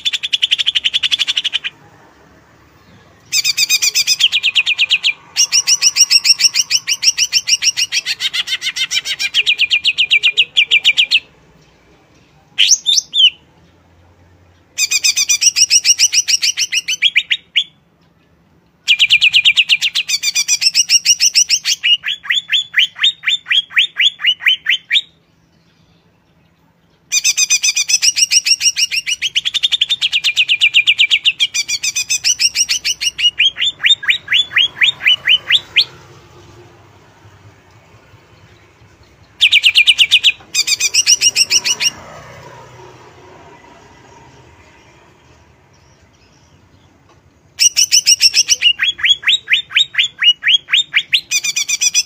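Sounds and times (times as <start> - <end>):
bird singing rapid trills: 2.6 - 11.9, 14.5 - 52.0.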